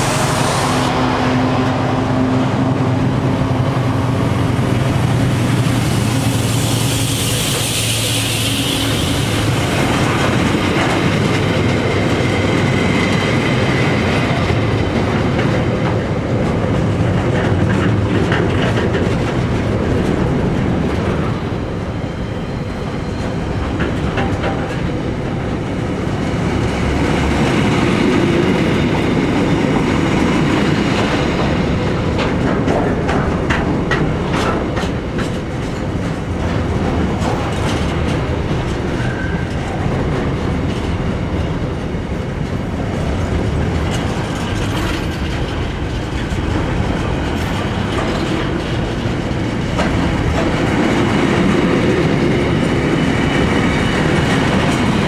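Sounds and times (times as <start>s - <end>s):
train wheels rumbling on rail: 0.0s - 55.0s
wheels clicking over rail joints: 9.5s - 21.4s, 23.2s - 26.2s, 26.8s - 55.0s.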